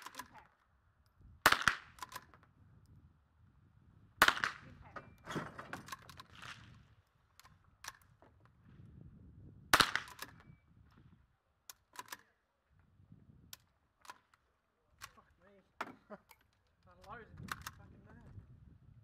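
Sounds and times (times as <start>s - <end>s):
rifle shot: 1.4s - 2.2s, 4.2s - 4.8s, 9.7s - 10.4s.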